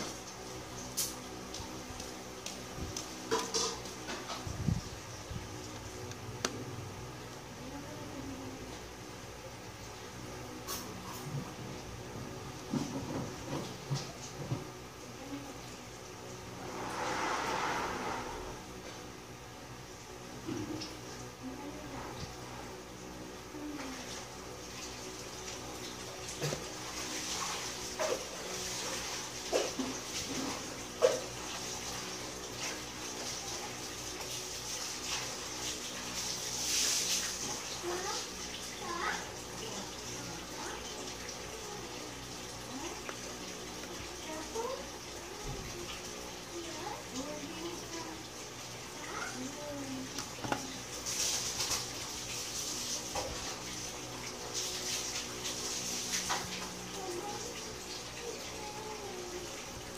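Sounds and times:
steady low hum: 0:00.0 - 0:59.9
rushing hiss: 0:16.6 - 0:18.6.

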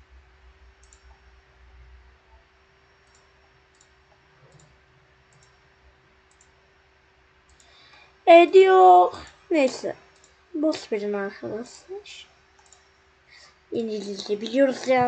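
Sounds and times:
faint steady hum: 0:00.0 - 0:15.0
computer mouse clicks: 0:00.8 - 0:01.2, 0:03.0 - 0:05.6, 0:06.3 - 0:06.6, 0:07.4 - 0:08.0, 0:09.2 - 0:10.9, 0:12.6 - 0:13.0.

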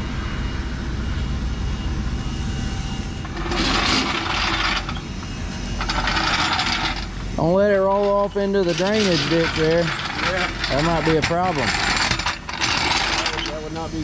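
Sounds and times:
low mechanical hum: 0:00.0 - 0:14.0
casters rolling over concrete: 0:05.8 - 0:13.6.

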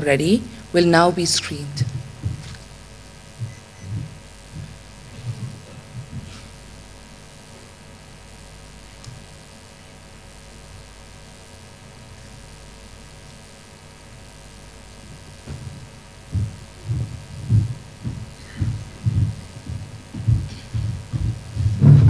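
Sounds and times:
electrical mains hum and hiss: 0:00.0 - 0:22.0
low thumps: 0:15.4 - 0:22.0.

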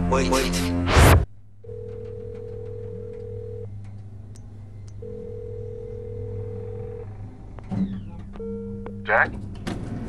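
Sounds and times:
low hum: 0:00.0 - 0:10.0
telephone ringback beep: 0:01.7 - 0:03.7, 0:05.0 - 0:07.0.

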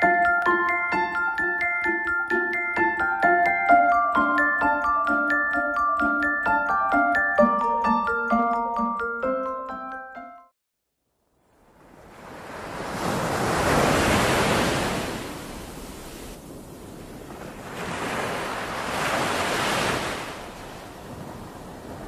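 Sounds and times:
sea surf washing over rocks: 0:12.0 - 0:22.0
wind on microphone: 0:12.3 - 0:22.0.

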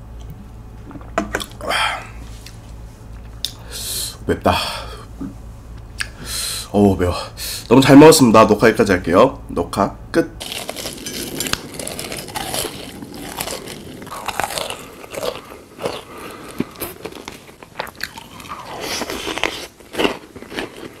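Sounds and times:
person chewing crunchy food: 0:10.4 - 0:21.0.

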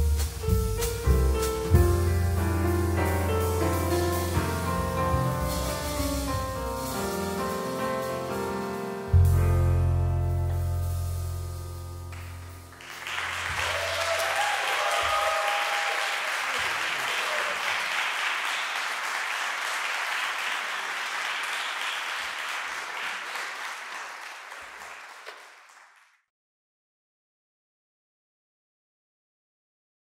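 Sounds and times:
piano and bass chord: 0:00.0 - 0:13.6
audience applauding: 0:12.2 - 0:26.2.

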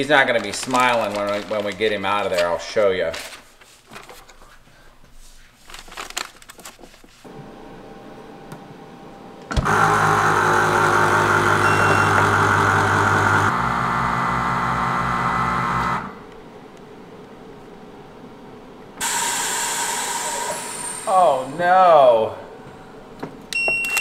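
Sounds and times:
vacuum pump humming: 0:07.3 - 0:16.3.

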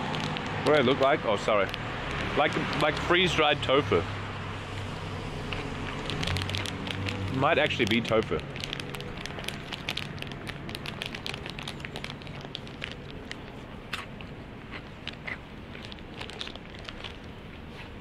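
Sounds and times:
crunchy snack being eaten: 0:05.4 - 0:18.0.

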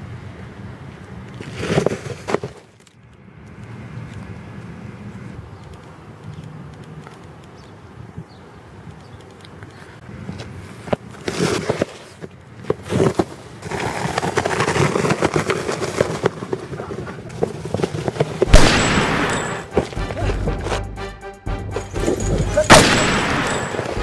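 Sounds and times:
rapid gunfire: 0:18.5 - 0:19.7, 0:22.7 - 0:23.8
loud bang: 0:18.5 - 0:19.8, 0:22.5 - 0:24.0.

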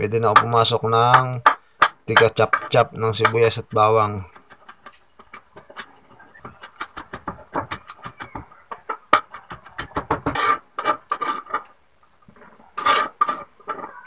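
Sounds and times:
knife chopping on a board: 0:06.4 - 0:08.4, 0:09.1 - 0:10.6.

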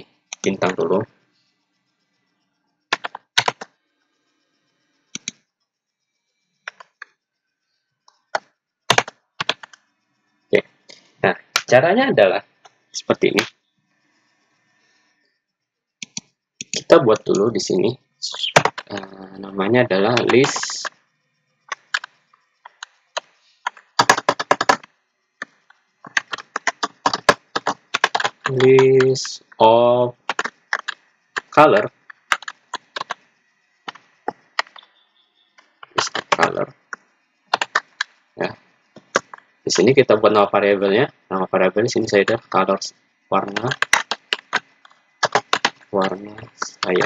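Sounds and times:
computer keyboard keys clicking: 0:00.3 - 0:00.8, 0:02.9 - 0:03.7, 0:05.2 - 0:05.4, 0:08.9 - 0:09.8, 0:16.0 - 0:17.4, 0:20.1 - 0:20.9, 0:21.7 - 0:22.1, 0:22.7 - 0:24.9, 0:26.1 - 0:29.3, 0:30.2 - 0:33.2, 0:33.9 - 0:34.8, 0:35.8 - 0:36.6, 0:37.5 - 0:38.1, 0:39.0 - 0:39.9, 0:43.5 - 0:47.0.

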